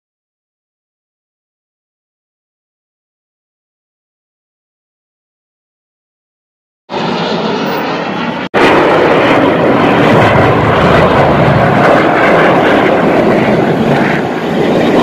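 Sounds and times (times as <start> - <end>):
jet aircraft flying past: 6.9 - 15.0.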